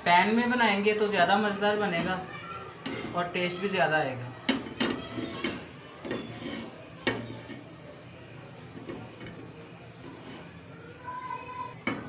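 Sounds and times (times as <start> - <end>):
steady low hiss: 0.0 - 4.2
frying pan knocking on stove grate: 4.5 - 6.2.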